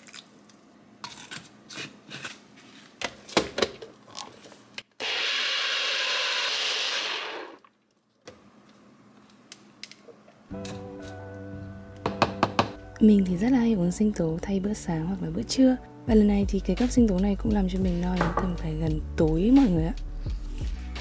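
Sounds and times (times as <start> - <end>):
electric blender running: 5.0 - 7.7
kitchen knocks and clatter: 12.1 - 12.8.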